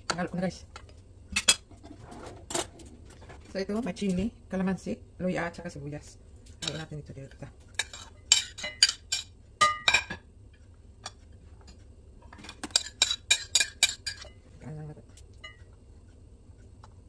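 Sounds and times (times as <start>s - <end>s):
metal spoon clinking on ceramic dishes: 6.6s - 6.9s, 7.8s - 10.2s, 12.6s - 14.4s.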